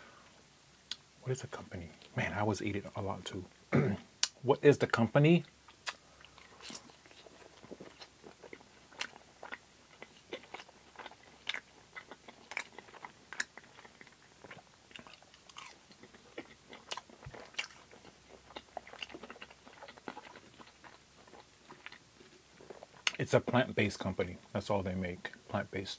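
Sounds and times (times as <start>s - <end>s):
chewing crispy battered food: 5.4s - 25.8s.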